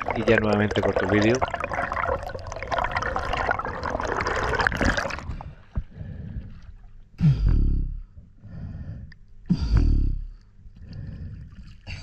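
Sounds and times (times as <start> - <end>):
underwater water rushing and bubbling: 0.0 - 6.7.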